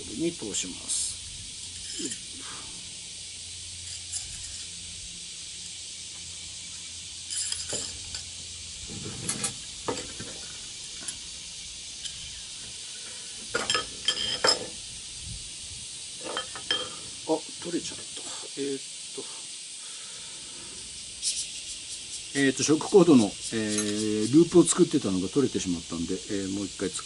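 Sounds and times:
steady background hiss: 0.0s - 27.0s
metal poles clinking: 1.6s - 2.4s, 3.8s - 4.8s, 7.2s - 11.3s, 13.4s - 14.8s, 16.2s - 17.1s, 23.5s - 24.8s.

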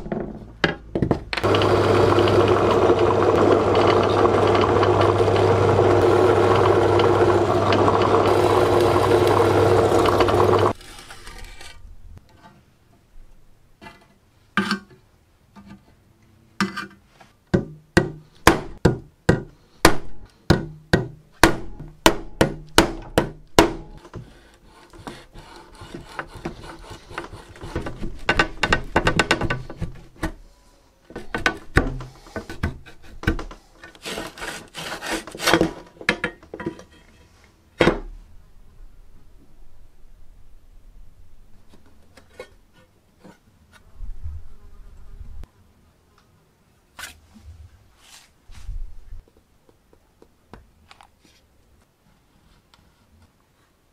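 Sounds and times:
tool scraping and rubbing: 10.6s - 12.6s, 24.0s - 28.4s, 32.0s - 35.8s.

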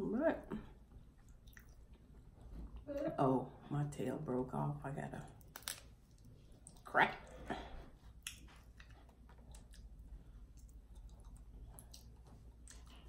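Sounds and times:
crawfish shell cracking: 5.4s - 5.9s.

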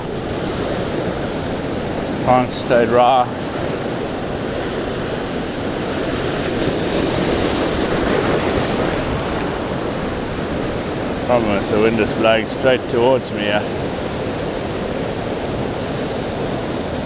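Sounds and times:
surf breaking over rocks: 0.0s - 17.0s
wind on microphone: 0.0s - 17.0s.

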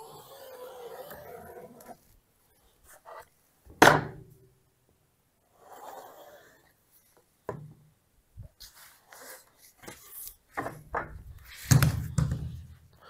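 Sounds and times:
wood knocking and scraping on wood: 9.8s - 12.6s.

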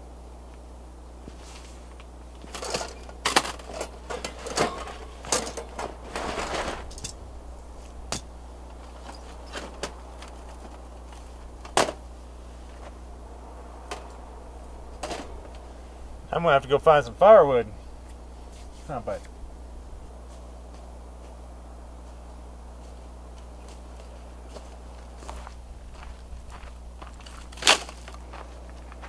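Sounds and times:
steady low hum: 0.0s - 29.0s
metal clinks and rattles: 2.4s - 7.2s.

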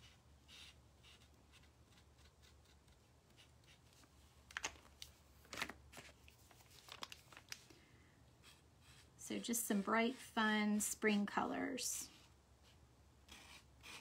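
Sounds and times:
paint pen scratching on wood: 0.0s - 3.9s, 12.1s - 14.0s.

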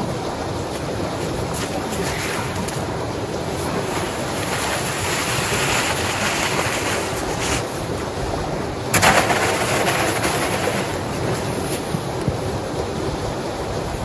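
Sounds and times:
snow being shoveled: 3.5s - 7.8s.

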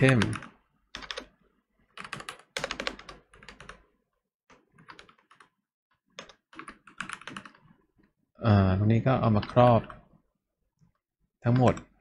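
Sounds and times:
typing on keyboard: 0.0s - 7.8s.

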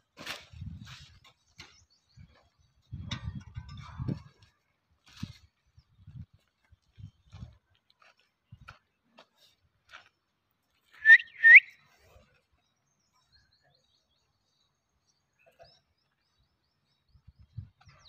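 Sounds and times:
upward sweeping whistled notes: 11.0s - 11.8s.

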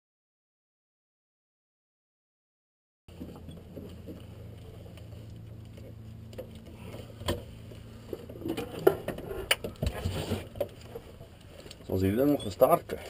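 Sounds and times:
steady low hum: 3.1s - 13.0s.

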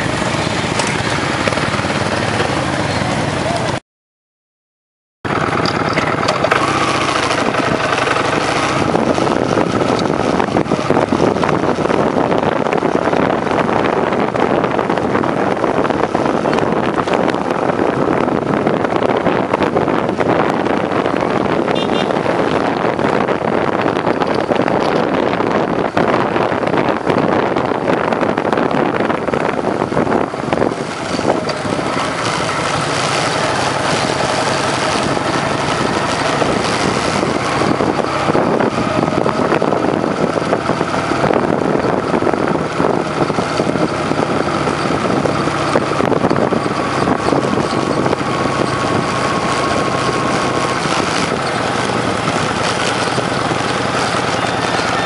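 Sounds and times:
motorcycle engine running: 0.0s - 3.8s, 5.3s - 55.0s.

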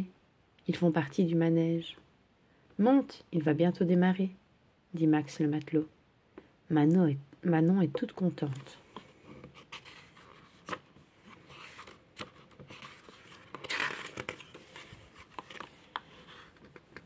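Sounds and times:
paper page rustling: 9.2s - 17.0s.

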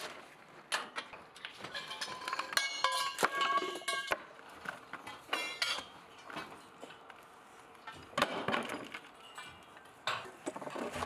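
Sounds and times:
steel pipes knocking and clinking: 1.7s - 4.3s, 5.0s - 7.0s.

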